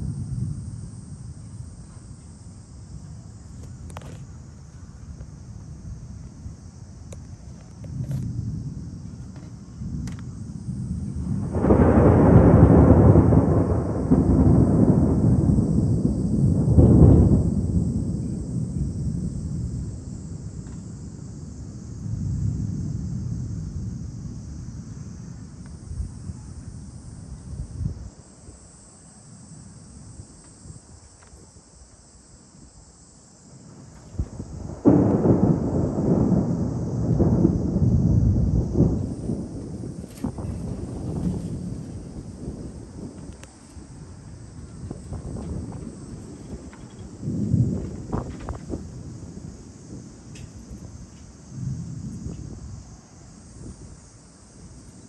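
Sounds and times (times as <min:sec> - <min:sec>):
thunder rumbling: 0:00.0 - 0:55.0
thunder crack: 0:07.9 - 0:28.0, 0:33.6 - 0:54.9.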